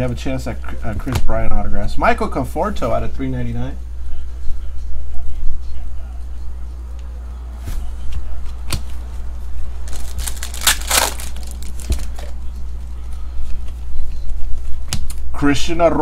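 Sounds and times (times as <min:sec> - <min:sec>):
steady low hum: 0:00.0 - 0:16.0
foil wrapper crinkling and tearing: 0:09.9 - 0:12.3.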